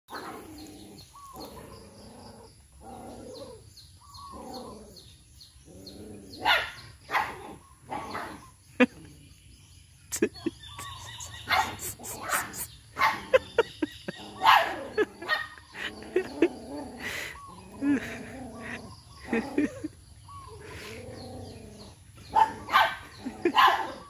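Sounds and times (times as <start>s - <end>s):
dog barking: 6.4s - 8.4s, 11.4s - 13.4s, 14.4s - 16.3s, 22.3s - 24.0s
dog calling drawn-out: 10.8s - 13.2s.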